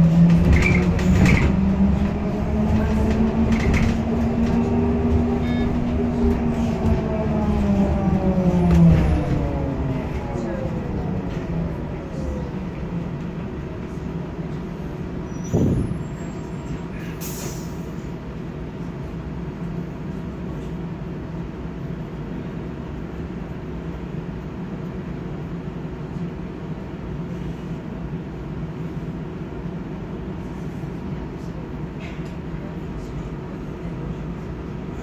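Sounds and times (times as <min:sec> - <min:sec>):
short hiss of air: 0:17.2 - 0:17.9.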